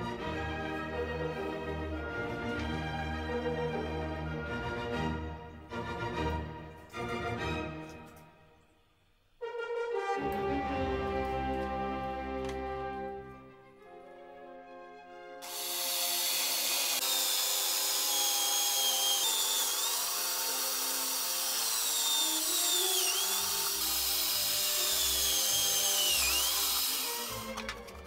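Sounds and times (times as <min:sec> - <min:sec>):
background music: 0:00.0 - 0:16.5, 0:19.8 - 0:28.0
drill boring through acrylic: 0:15.4 - 0:27.7.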